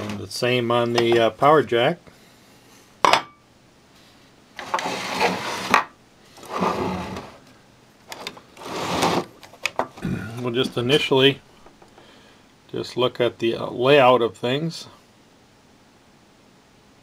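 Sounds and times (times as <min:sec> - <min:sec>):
metal lid scraping: 0:04.6 - 0:07.4.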